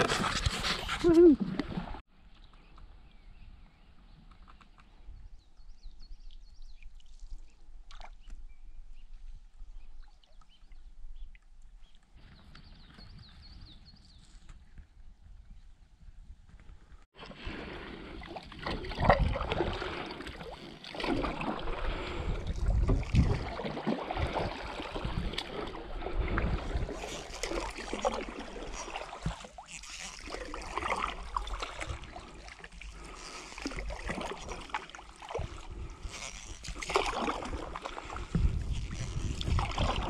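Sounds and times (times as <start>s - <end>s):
canoe paddles splashing in water: 17.1s - 40.0s
wind rumble on microphone: 21.6s - 27.4s, 35.4s - 40.0s.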